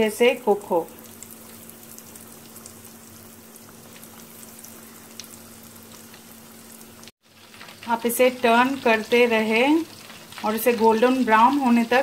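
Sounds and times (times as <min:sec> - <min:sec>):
faint steady hum: 0:00.0 - 0:08.8
food deep-frying in oil: 0:00.0 - 0:12.0.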